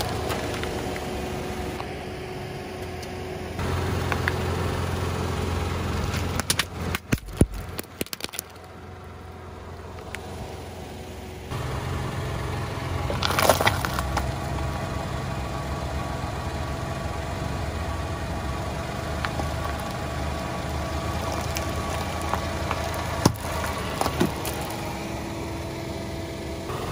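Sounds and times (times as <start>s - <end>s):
car engine idling: 0.0s - 26.9s
tyre crushing small objects: 6.2s - 8.8s, 13.1s - 14.3s, 21.2s - 24.9s.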